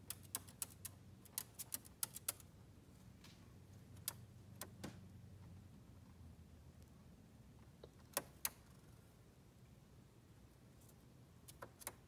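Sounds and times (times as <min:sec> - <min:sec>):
bird claws clicking on wood: 0:00.0 - 0:02.4, 0:11.5 - 0:12.0
faint low hum: 0:00.0 - 0:12.0.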